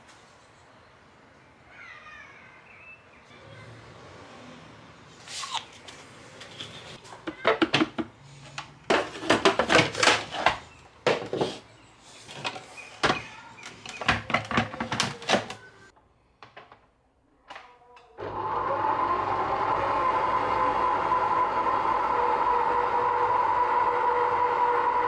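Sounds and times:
plastic bowl and lid clattering: 8.9 - 11.6, 12.3 - 15.6
food processor motor running: 18.2 - 25.0.

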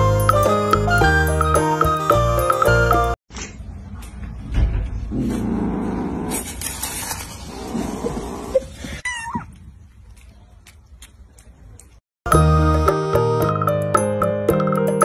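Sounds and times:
piano music: 0.0 - 3.2, 12.3 - 15.0.

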